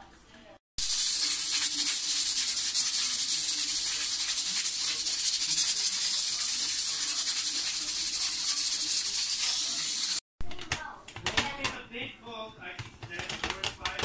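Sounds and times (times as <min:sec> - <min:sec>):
steam hissing from pressure cooker: 0:00.8 - 0:10.2.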